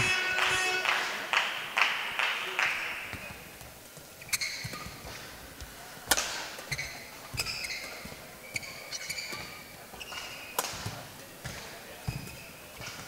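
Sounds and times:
shoes squeaking on court: 3.1s - 5.8s, 6.6s - 13.0s
racket hitting shuttlecock: 4.4s - 5.3s, 6.1s - 8.2s, 9.1s - 13.0s.

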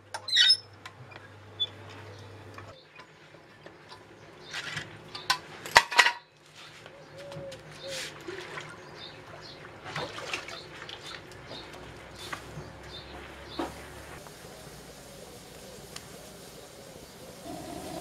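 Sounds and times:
metal tools clanking on paving: 4.7s - 6.3s
water splashing and dripping: 8.1s - 12.6s.

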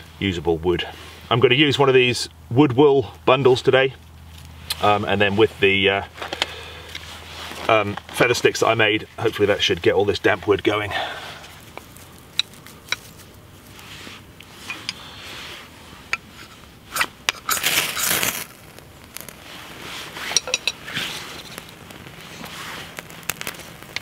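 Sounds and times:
wood wool crackling: 4.0s - 24.0s
knife scraping ferro rod: 13.8s - 18.5s.

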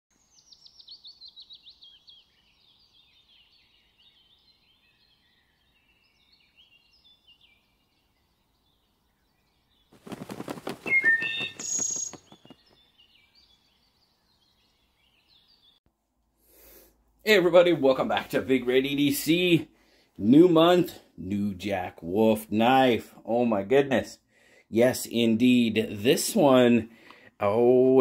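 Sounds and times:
bird chirps: 0.1s - 15.8s
cardinal whistled song: 10.6s - 12.7s.

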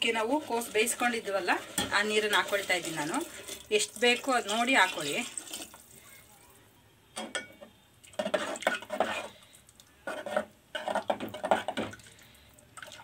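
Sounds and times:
metal ladle scraping a metal pot: 0.0s - 3.7s, 8.2s - 9.4s, 10.0s - 11.9s.

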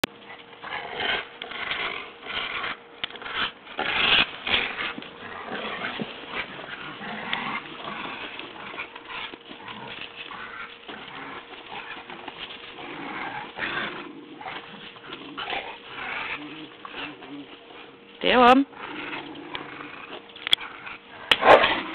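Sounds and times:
dogs growling and scuffling: 0.0s - 21.9s.

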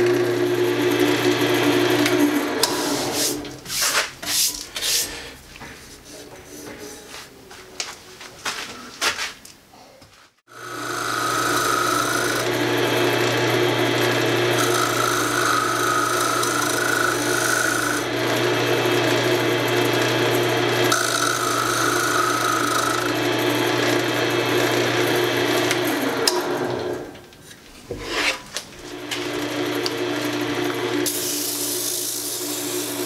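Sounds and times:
wood lathe motor running: 0.0s - 3.5s, 10.5s - 27.2s, 28.8s - 33.0s
tool scraping spinning wood: 0.0s - 7.2s, 10.5s - 27.2s, 27.9s - 33.0s.

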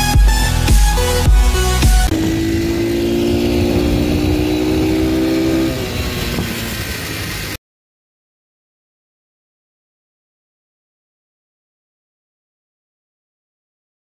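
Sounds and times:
electronic intro music: 0.0s - 6.1s
motorbike engine revving: 0.6s - 7.6s.

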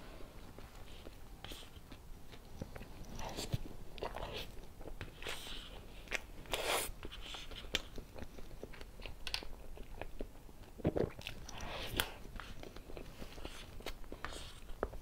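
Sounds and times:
wet chewing and smacking: 0.6s - 15.0s.

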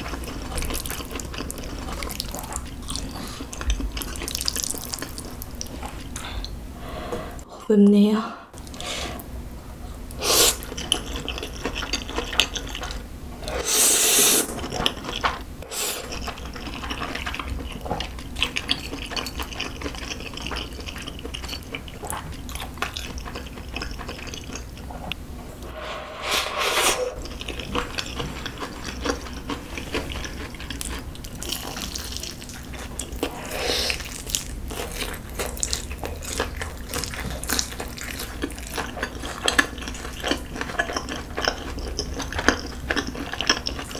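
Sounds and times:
wet chewing and smacking: 0.0s - 6.3s, 10.6s - 13.0s, 16.0s - 25.2s, 27.2s - 43.9s.

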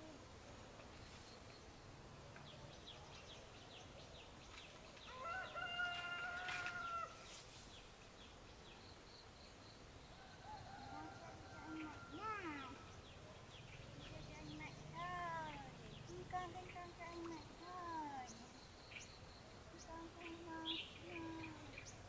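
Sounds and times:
small birds chirping: 0.0s - 22.0s
rooster crowing: 5.1s - 7.2s, 10.2s - 12.6s.

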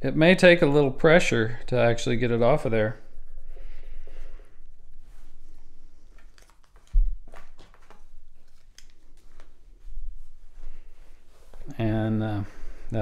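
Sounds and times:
handling ticks: 6.0s - 9.7s.

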